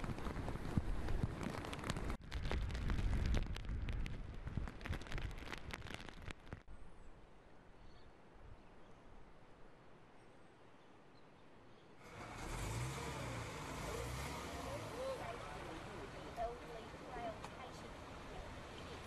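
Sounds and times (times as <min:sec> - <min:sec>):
sharp irregular crackles: 0:00.0 - 0:06.7
wind rumbling on microphone: 0:00.0 - 0:07.1.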